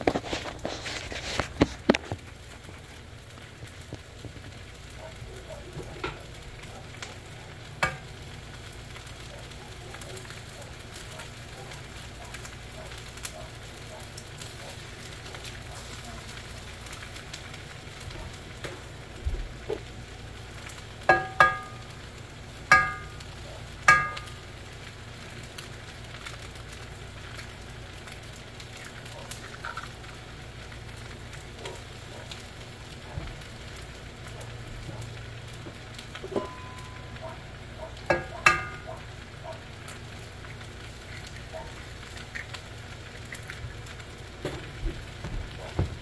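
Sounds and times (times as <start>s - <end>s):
rice sizzling in a pan: 0.0s - 46.0s
light taps on pan: 7.8s - 8.0s, 21.1s - 21.9s, 22.7s - 23.2s, 23.9s - 24.4s, 38.1s - 38.9s
utensil clinking on metal pan: 7.8s - 8.1s, 21.1s - 22.0s, 22.7s - 23.2s, 23.9s - 24.4s, 36.2s - 37.1s, 38.1s - 39.0s.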